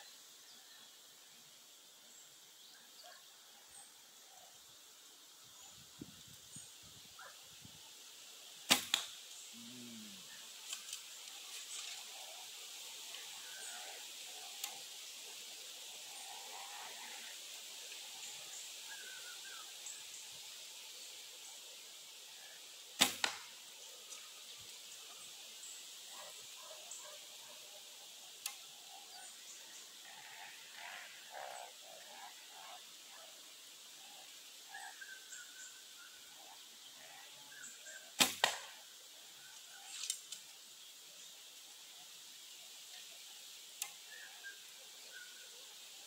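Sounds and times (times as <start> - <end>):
faint bird chirps: 2.0 - 8.0, 8.8 - 15.4, 18.1 - 21.6, 23.8 - 40.1, 41.2 - 46.0
bow string snap: 8.7 - 9.2, 23.0 - 23.5, 28.4 - 28.6, 38.2 - 38.8.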